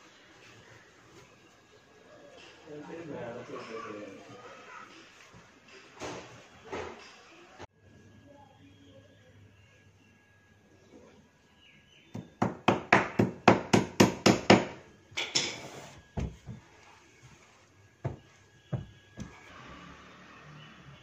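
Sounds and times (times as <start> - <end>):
hammer striking wooden frame: 12.1 - 14.8, 18.1 - 19.4
knocks: 18.0 - 19.4.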